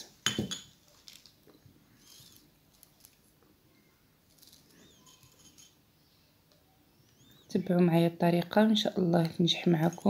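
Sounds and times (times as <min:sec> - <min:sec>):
faint high chirping notes: 0:04.8 - 0:07.5.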